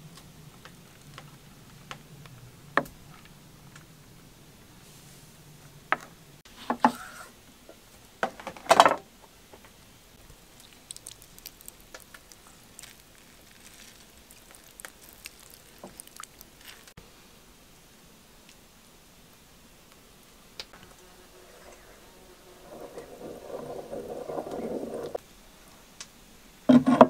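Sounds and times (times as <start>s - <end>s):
juice dripping: 10.2s - 17.0s
lemon being squeezed: 10.3s - 16.9s
spices clicking against stone mortar: 10.6s - 16.9s.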